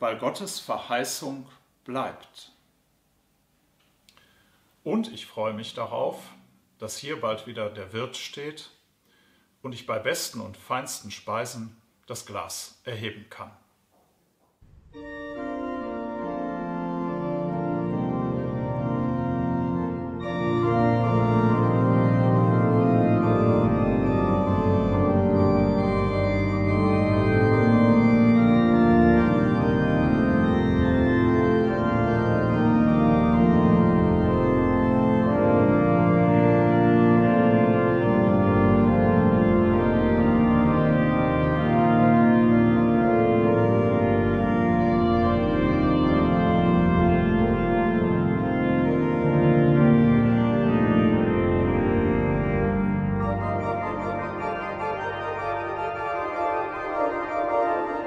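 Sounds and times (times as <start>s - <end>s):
pipe organ sustained chords: 14.6s - 58.0s.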